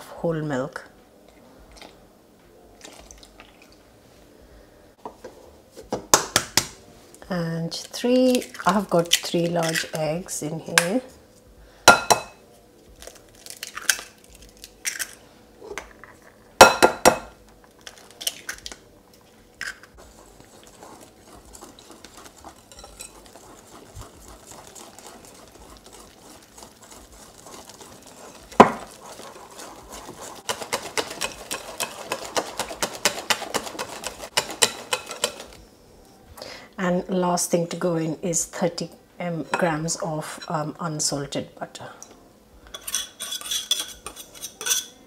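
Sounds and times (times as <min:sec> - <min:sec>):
batter being beaten: 0:20.0 - 0:35.5
utensil clinking against bowl: 0:21.6 - 0:23.4, 0:30.4 - 0:35.6.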